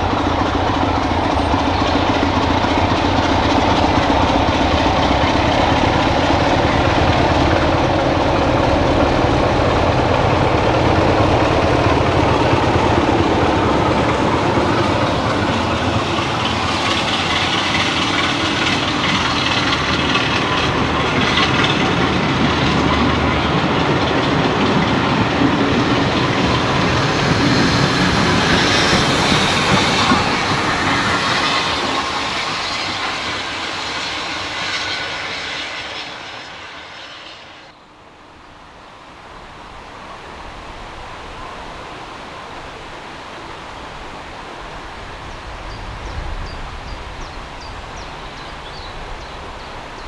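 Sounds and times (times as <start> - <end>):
train wheels clicking over rail joints: 0.0 - 37.7.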